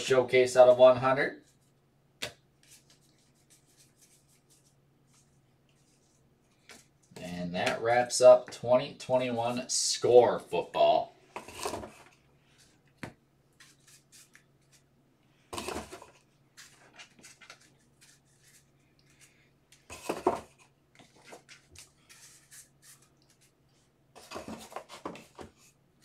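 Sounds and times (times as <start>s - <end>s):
objects being handled: 11.3s - 25.8s.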